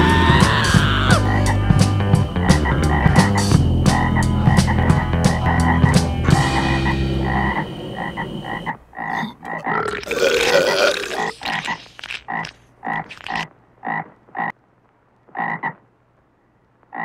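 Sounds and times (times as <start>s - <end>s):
music: 0.0s - 8.5s
frog croaking: 2.4s - 14.6s, 15.3s - 15.8s.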